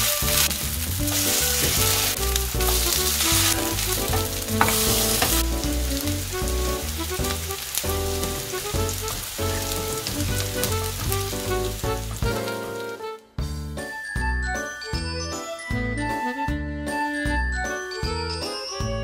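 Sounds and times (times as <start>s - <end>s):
pancakes sizzling in oil: 0.0s - 13.1s
background music with bass line: 0.0s - 19.0s.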